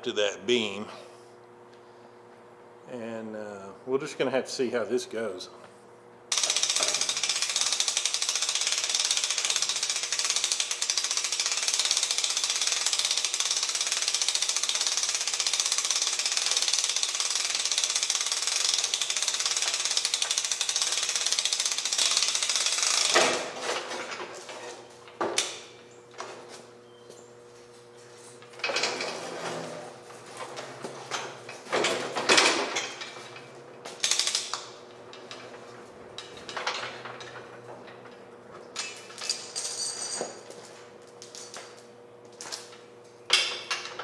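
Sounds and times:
hand-cranked hoist clicking: 6.3 - 23.4, 34.0 - 35.4.

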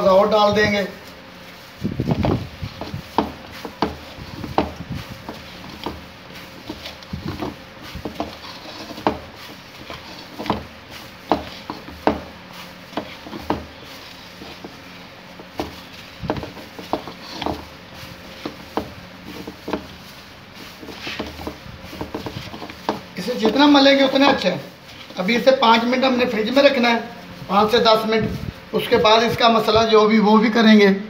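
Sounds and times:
meat slapping in steel bowl: 1.5 - 25.2.

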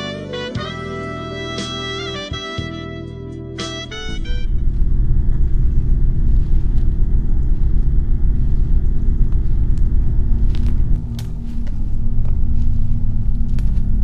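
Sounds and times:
saxophone music: 0.0 - 11.0
wind buffeting microphone: 4.3 - 14.0.

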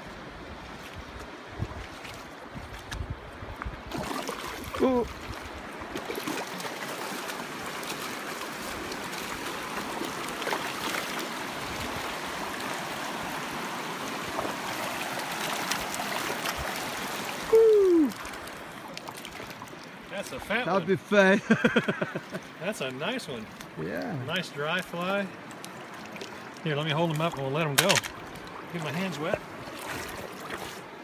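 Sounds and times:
flowing river water: 0.0 - 31.0
short voice sound: 17.5 - 18.2
voice with falling pitch: 17.5 - 18.2.

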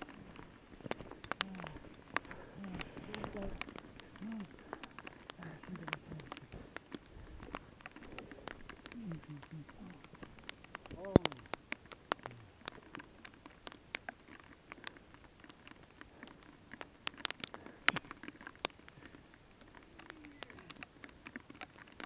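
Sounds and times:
bike tyres crackling on trail: 0.0 - 22.0.

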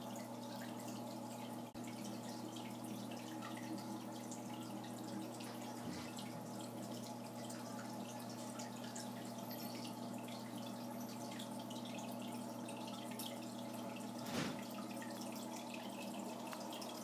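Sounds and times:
electric pump hum: 0.0 - 17.0
water trickling and dripping: 0.0 - 17.0
short bump: 14.2 - 14.7.

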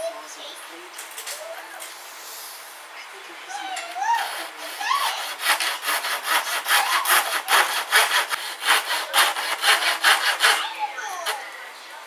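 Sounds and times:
saw cutting plywood: 4.2 - 11.4.

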